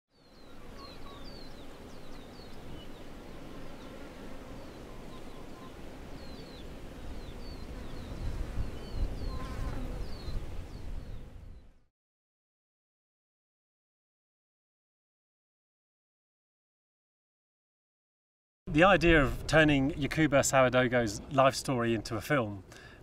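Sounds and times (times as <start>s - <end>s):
insects buzzing: 0.2s - 11.6s.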